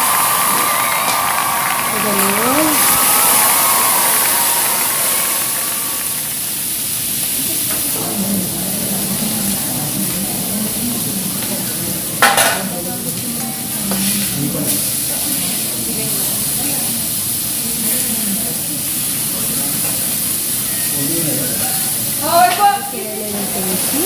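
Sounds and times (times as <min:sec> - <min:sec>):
steaks sizzling on griddle: 0:00.0 - 0:24.0.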